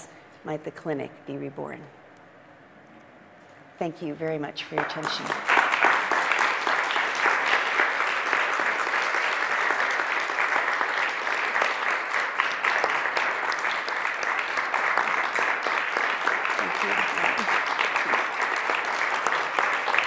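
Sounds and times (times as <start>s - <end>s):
audience applauding: 4.8s - 20.0s.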